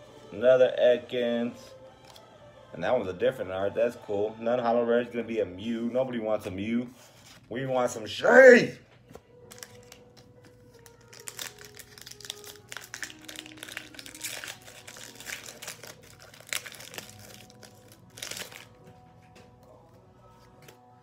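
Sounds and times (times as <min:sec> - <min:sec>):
faint music: 0:00.0 - 0:21.0
foil wrapper crinkling: 0:09.3 - 0:18.8.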